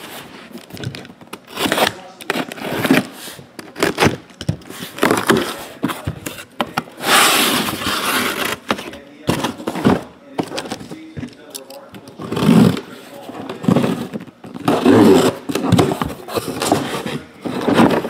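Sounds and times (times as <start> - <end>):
rasping cardboard scrape: 7.0 - 8.8, 13.5 - 18.0.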